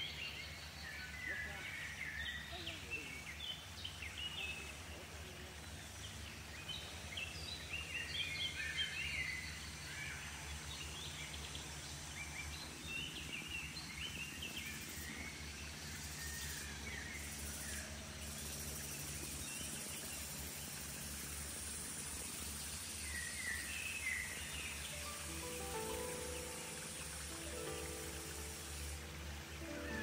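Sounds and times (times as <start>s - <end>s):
low outdoor hum: 0.0s - 30.0s
birds chirping: 21.9s - 30.0s.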